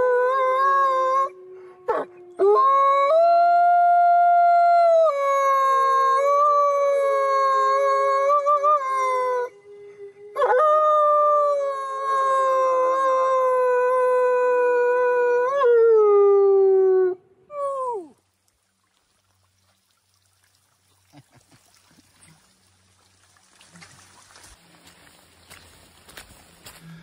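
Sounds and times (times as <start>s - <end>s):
man howling like a wolf: 0.0s - 18.2s.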